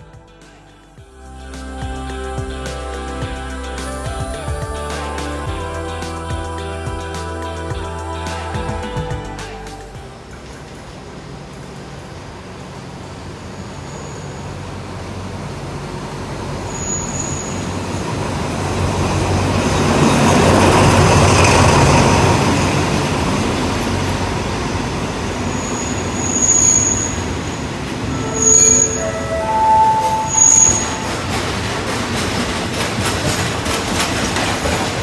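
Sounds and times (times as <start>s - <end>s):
diesel locomotive passing: 9.5s - 35.0s
carriages rolling past: 10.0s - 35.0s
high-pitched brake squeals: 13.5s - 14.7s, 16.6s - 17.8s, 25.5s - 31.5s.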